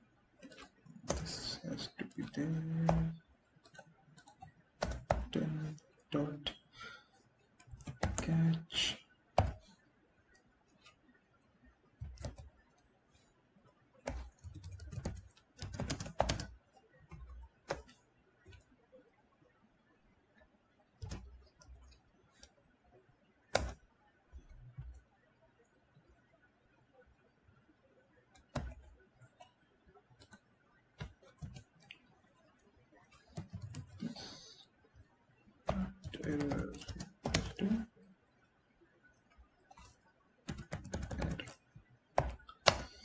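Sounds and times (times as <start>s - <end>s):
computer keyboard typing: 0.4s - 5.8s, 7.6s - 8.7s, 12.0s - 12.8s, 14.0s - 18.6s, 21.0s - 22.5s, 23.5s - 23.8s, 28.3s - 29.5s, 30.2s - 32.5s, 33.1s - 34.5s, 35.6s - 37.9s, 39.3s - 43.0s.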